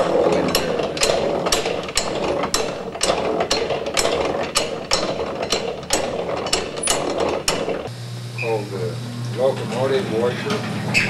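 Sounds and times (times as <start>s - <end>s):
agitator drive clacking: 0.0s - 7.9s
washing machine gears whirring: 0.0s - 8.6s, 9.4s - 11.0s.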